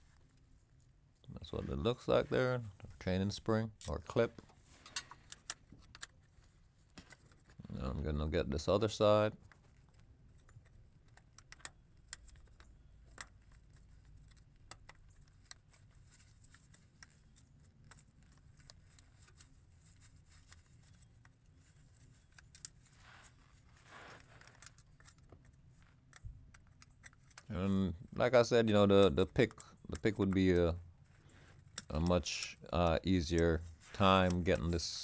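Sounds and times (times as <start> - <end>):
rustle: 22.8 - 24.5.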